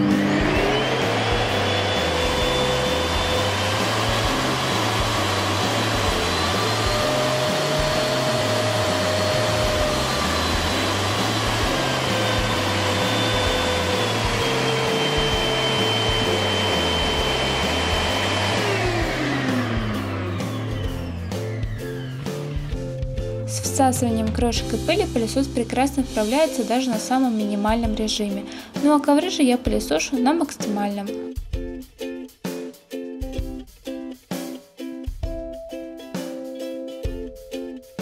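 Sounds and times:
vacuum cleaner motor whine: 0.0 - 22.8.

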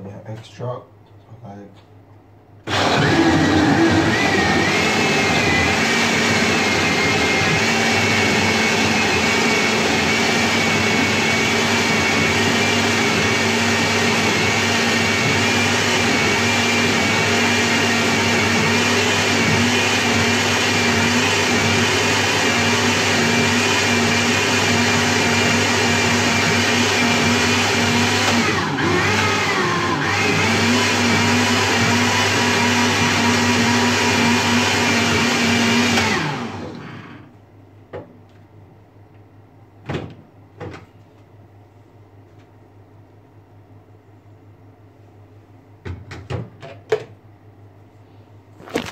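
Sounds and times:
blender motor whining: 2.7 - 37.3, 48.6 - 48.9.

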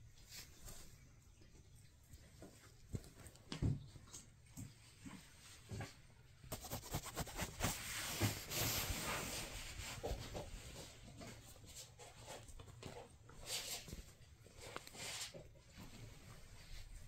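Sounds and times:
kitten scrabbling on bedding: 6.5 - 10.8.

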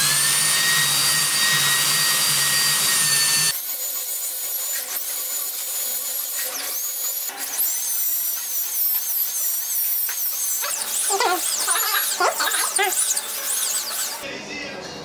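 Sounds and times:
dental drill whining: 0.0 - 14.2.

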